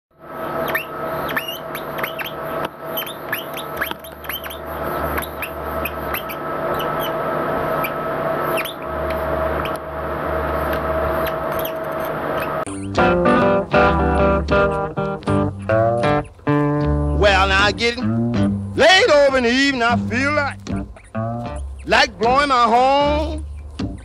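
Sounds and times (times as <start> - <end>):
steady hum: 0.2 - 24.0
marker squeaking on paper: 0.6 - 9.8, 10.5 - 13.0.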